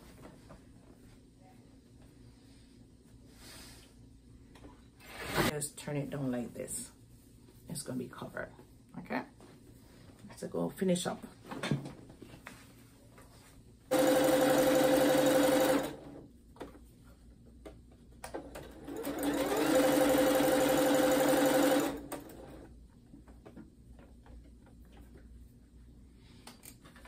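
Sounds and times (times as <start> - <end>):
sewing machine stitching: 13.9 - 16.2, 18.4 - 22.6.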